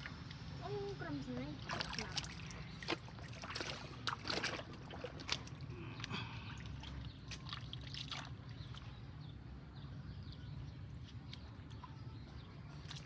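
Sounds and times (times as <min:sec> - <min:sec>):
hand splashing in muddy water: 0:01.7 - 0:08.8.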